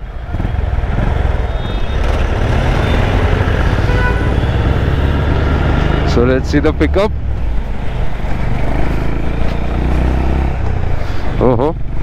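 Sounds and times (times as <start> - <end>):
motorcycle engine running: 0.0 - 6.4.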